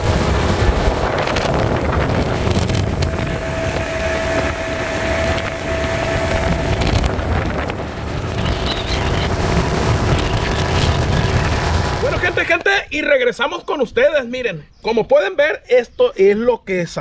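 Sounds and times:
outboard motor running: 0:00.0 - 0:12.4
water rushing past hull: 0:00.0 - 0:12.6
wind buffeting microphone: 0:00.0 - 0:13.1.

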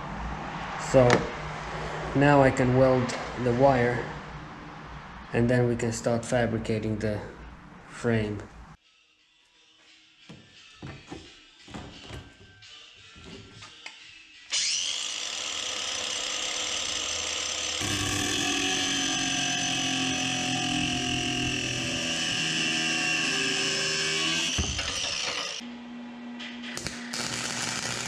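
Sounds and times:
angle grinder running: 0:14.6 - 0:25.6
grinder disc grinding metal rod: 0:14.7 - 0:25.6.

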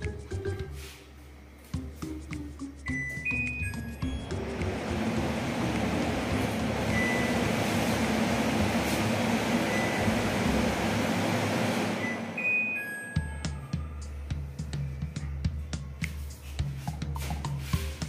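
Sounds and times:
exhaust fan air rushing: 0:03.4 - 0:12.4.

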